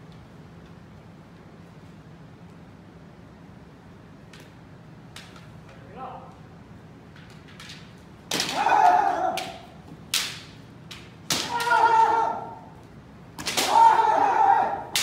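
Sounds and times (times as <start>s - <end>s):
bamboo swords striking: 8.3s - 12.2s, 13.4s - 15.0s
fencers yelling: 8.4s - 9.8s, 11.3s - 12.8s, 13.4s - 15.0s.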